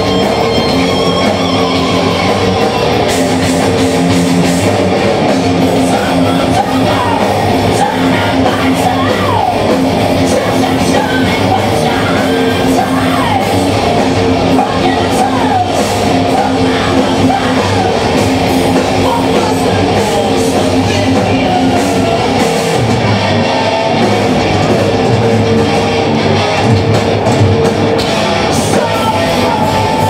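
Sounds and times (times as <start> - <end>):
heavy metal band playing: 0.0 - 30.0
person singing: 5.8 - 13.6, 14.5 - 22.7, 28.4 - 30.0.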